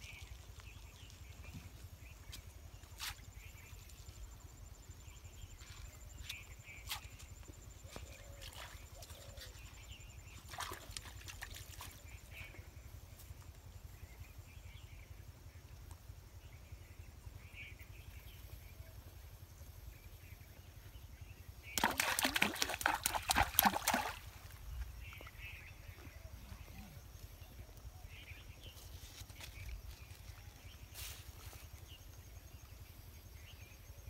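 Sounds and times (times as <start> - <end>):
crackling rustle and water sloshing: 0.0 - 13.8, 21.6 - 26.0.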